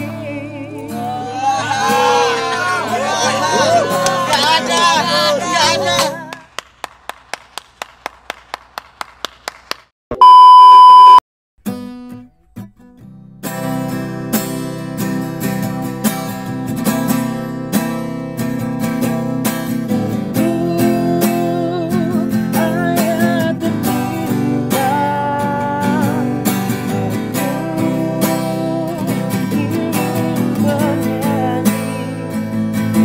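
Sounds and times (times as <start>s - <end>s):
man singing with vibrato: 0.0s - 2.4s, 3.5s - 6.4s, 20.3s - 32.4s
acoustic guitar strumming: 0.0s - 6.3s, 11.6s - 33.0s.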